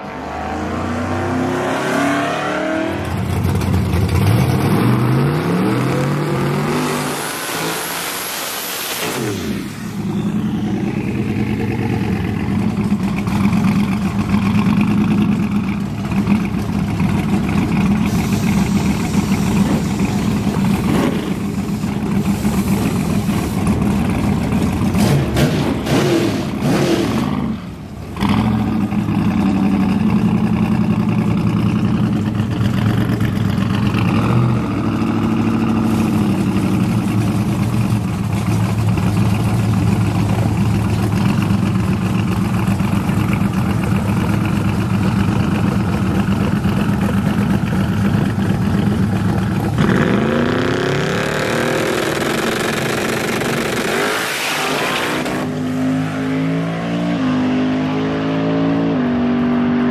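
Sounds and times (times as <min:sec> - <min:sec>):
pickup engine idling and revving: 0:00.0 - 0:59.9
second engine nearby: 0:00.0 - 0:59.9
truck launching hard: 0:03.1 - 0:11.6, 0:18.0 - 0:28.7.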